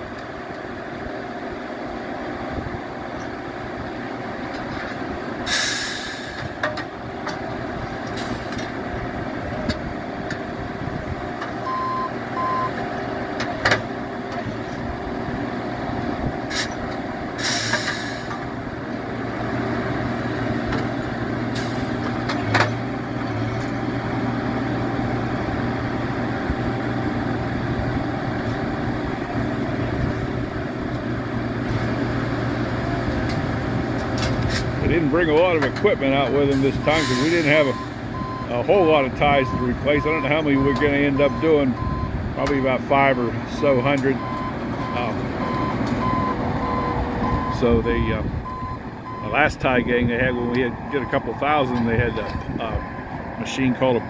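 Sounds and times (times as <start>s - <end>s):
hisses of air: 5.5s - 6.4s
short beeps: 11.6s - 12.7s.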